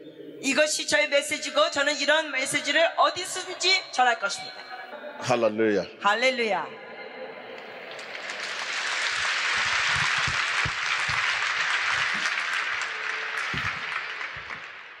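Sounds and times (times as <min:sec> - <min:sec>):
large crowd applauding: 0:07.9 - 0:15.0.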